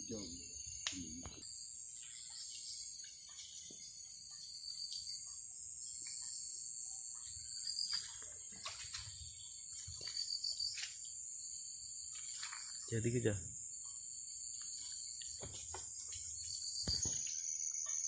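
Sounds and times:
insects droning: 0:00.0 - 0:18.0
low pulsing insect trill: 0:00.0 - 0:18.0
steps rustling in undergrowth: 0:07.2 - 0:11.1.

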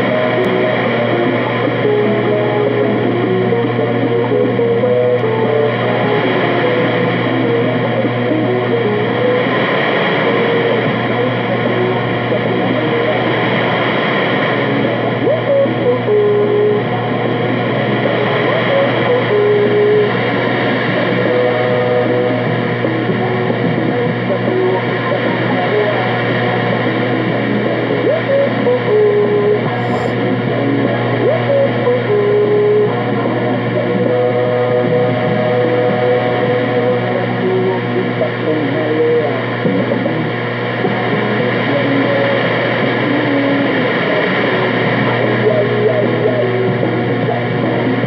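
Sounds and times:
radio static hiss: 0:00.0 - 0:32.9
muffled radio music: 0:00.0 - 0:48.0
radio static: 0:24.0 - 0:30.6
steady low hum: 0:29.4 - 0:30.6.

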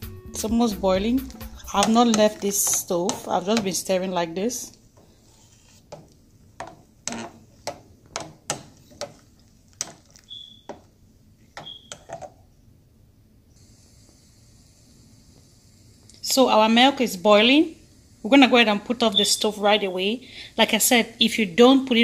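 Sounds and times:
spatula scraping a metal pan: 0:01.2 - 0:07.4
thin squeaks: 0:10.1 - 0:10.8.

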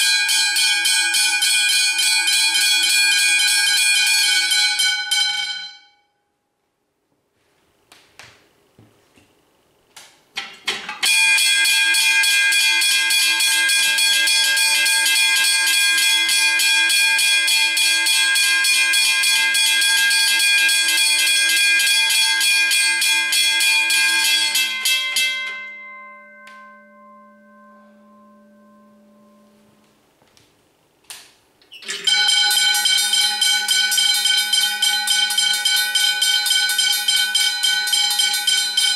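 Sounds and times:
level crossing bells ringing: 0:00.0 - 0:05.9, 0:11.0 - 0:29.8, 0:31.9 - 0:38.9
clicks and knocks: 0:09.9 - 0:11.1.

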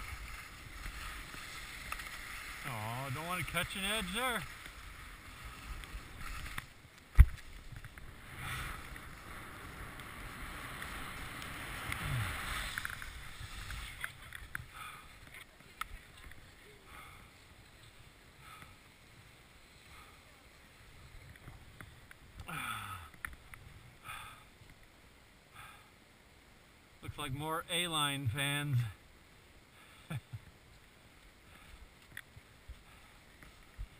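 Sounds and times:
skis scraping over snow: 0:00.0 - 0:14.7.

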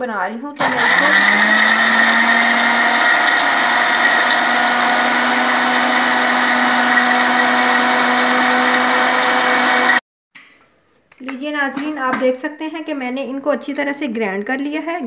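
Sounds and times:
blender motor whining: 0:00.6 - 0:10.0.

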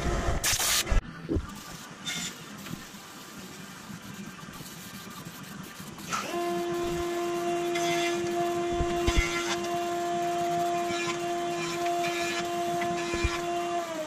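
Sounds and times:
motor humming: 0:05.1 - 0:14.0.

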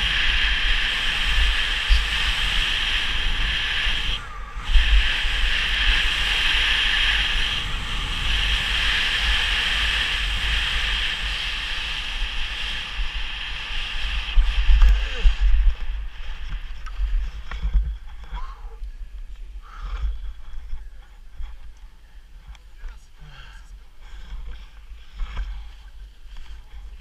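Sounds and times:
skis hissing over snow: 0:00.0 - 0:17.5
wind buffeting microphone: 0:00.0 - 0:23.0.

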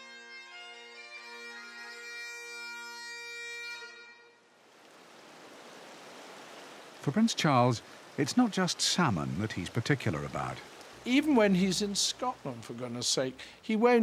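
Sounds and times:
bagpipe music: 0:00.0 - 0:04.5.

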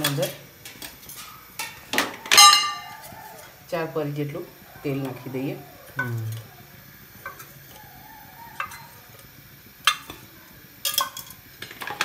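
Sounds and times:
metal container clinking: 0:00.0 - 0:02.9, 0:10.8 - 0:12.0.

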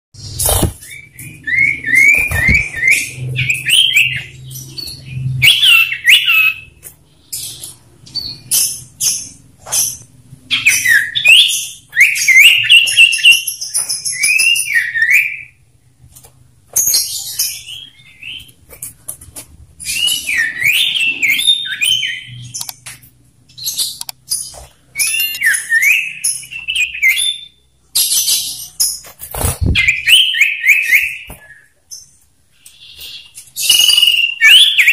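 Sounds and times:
birds whistling songs: 0:00.2 - 0:15.7, 0:16.8 - 0:19.0, 0:19.7 - 0:34.9
harsh high chattering calls: 0:32.7 - 0:34.9.

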